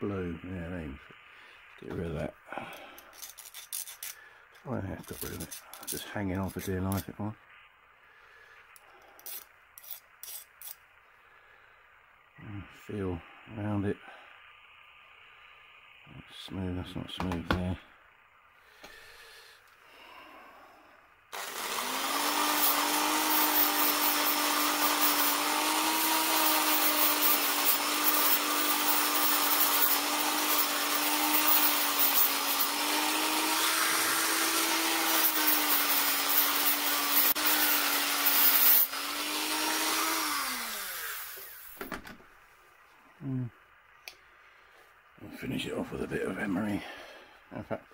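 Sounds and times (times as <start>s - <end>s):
power tool motor grinding: 21.3s - 41.8s.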